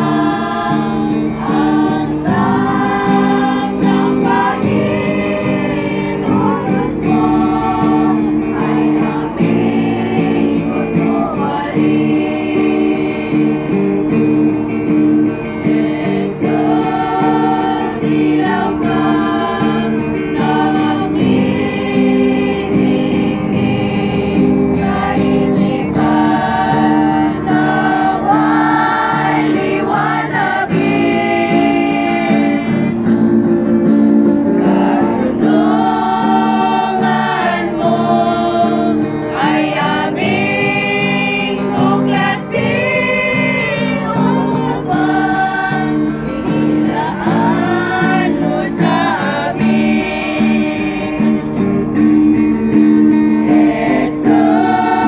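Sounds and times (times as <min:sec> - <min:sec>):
instrumental backing: 0:00.0 - 0:55.0
women's choir singing a hymn: 0:00.0 - 0:55.0.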